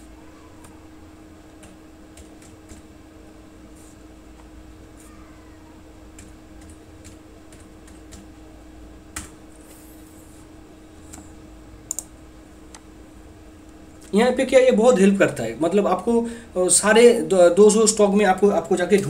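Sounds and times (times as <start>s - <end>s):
steady low hum: 0.0s - 19.0s
computer keyboard keys tapping: 1.6s - 2.9s, 6.2s - 8.3s, 9.1s - 9.4s, 11.9s - 12.1s
sharp click: 11.9s - 12.1s.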